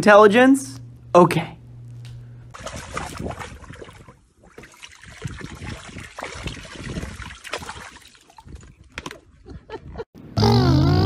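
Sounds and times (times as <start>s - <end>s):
dog splashing in water: 2.5s - 8.6s
hose water splashing into pool: 2.5s - 9.0s.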